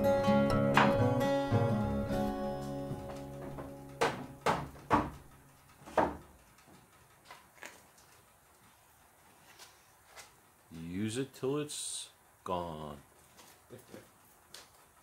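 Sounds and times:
acoustic guitar music: 0:00.0 - 0:05.5
knocks on wooden frame: 0:00.7 - 0:01.1, 0:02.9 - 0:06.3.

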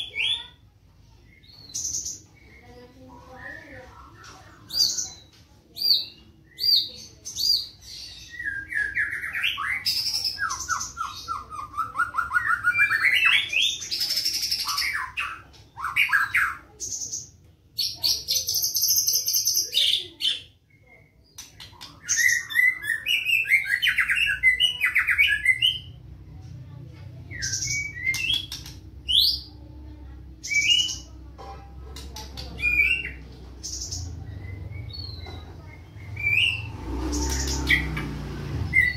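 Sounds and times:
songbird singing whistles and trills: 0:05.8 - 0:16.6, 0:17.8 - 0:26.0, 0:27.3 - 0:29.5, 0:30.4 - 0:31.1, 0:32.6 - 0:38.0.

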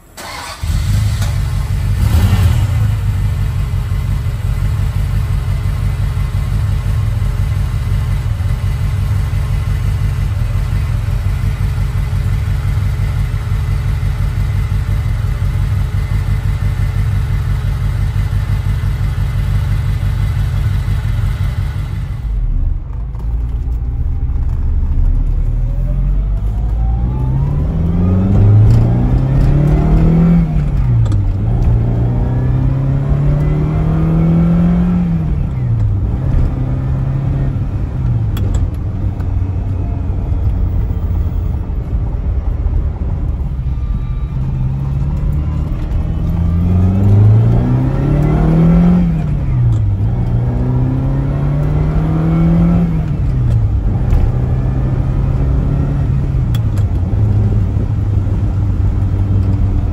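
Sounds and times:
car engine idling and revving: 0:00.0 - 0:59.9
car accelerating from inside: 0:23.7 - 0:40.5, 0:42.8 - 0:59.9.

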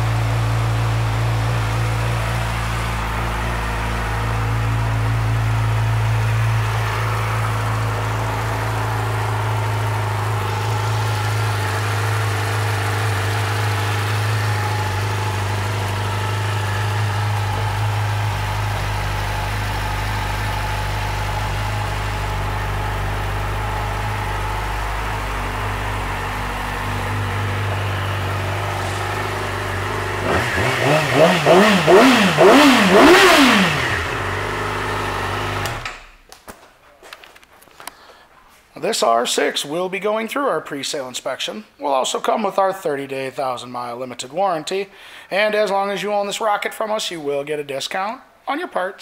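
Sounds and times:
motorcycle engine idling and revving: 0:00.0 - 0:36.2.

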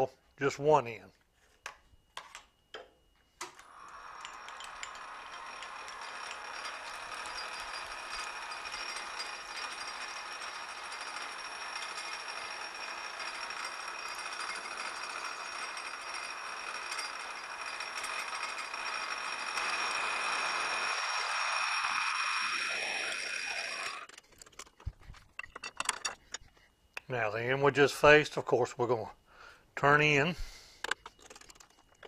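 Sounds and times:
metal lathe whining: 0:03.6 - 0:24.2.

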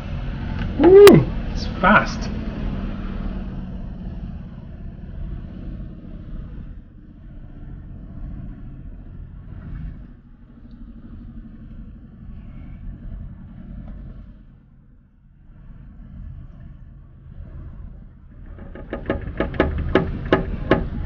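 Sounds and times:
spin-dryer tub spinning: 0:18.3 - 0:21.0.

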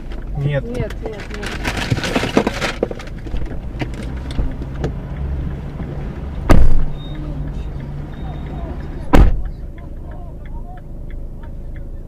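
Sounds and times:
car engine idling: 0:00.0 - 0:12.0
loud thump: 0:06.4 - 0:07.0, 0:09.1 - 0:09.5.

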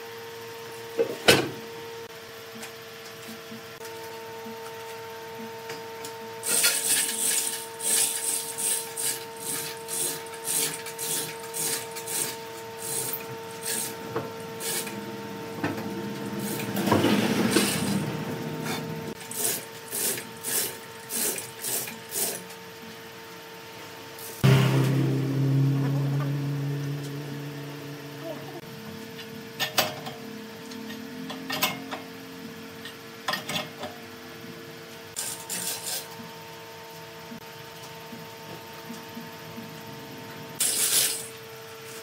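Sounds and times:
low steady hum: 0:24.4 - 0:33.0.

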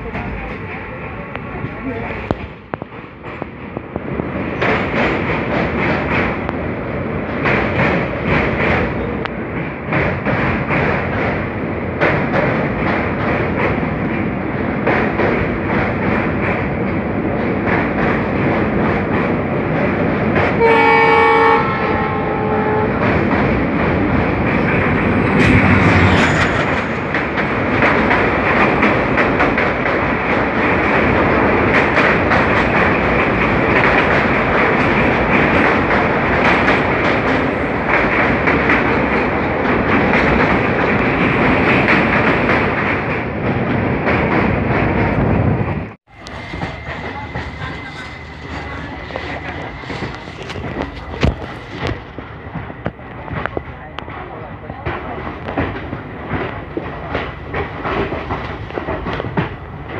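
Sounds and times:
passing train rushing by: 0:00.0 - 0:59.9
rail joints clickety-clack: 0:00.0 - 0:59.9
train wheels rumbling on rails: 0:00.0 - 0:59.9
two-note train horn: 0:20.6 - 0:23.0.

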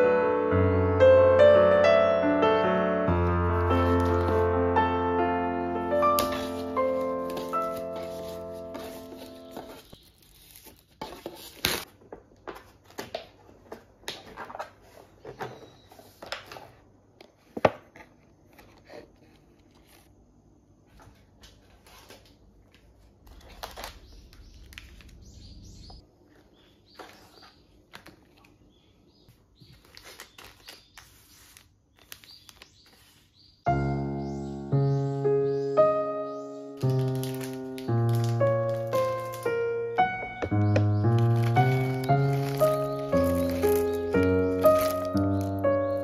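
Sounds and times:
plastic packaging crinkling: 0:03.5 - 0:04.5, 0:06.0 - 0:11.9, 0:21.1 - 0:25.9, 0:29.6 - 0:33.2, 0:36.7 - 0:46.0.

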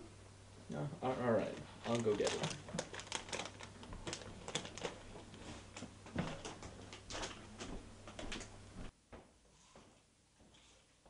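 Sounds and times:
plastic bag crinkling: 0:01.8 - 0:05.4.

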